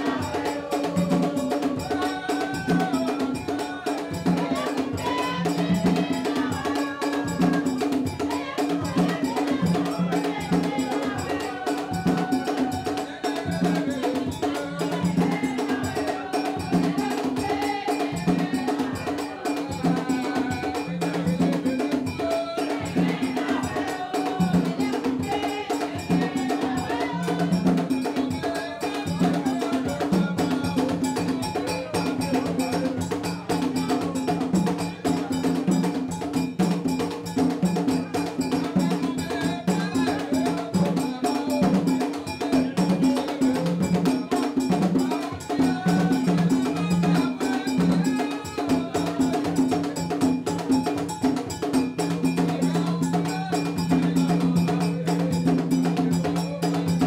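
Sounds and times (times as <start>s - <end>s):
group singing: 0.0s - 57.0s
percussion rhythm: 0.0s - 57.0s.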